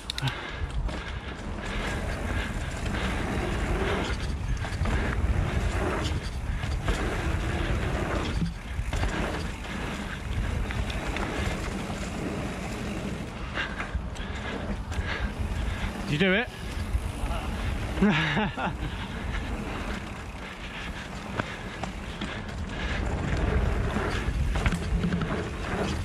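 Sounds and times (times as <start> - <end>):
bike tyres rumbling and rattling: 0.0 - 26.0
wind rushing over microphone: 0.0 - 26.0.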